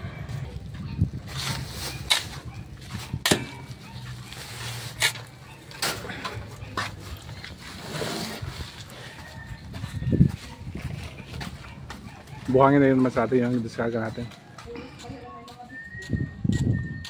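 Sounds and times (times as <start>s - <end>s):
knocks and scrapes of sand unloading: 1.2s - 8.9s.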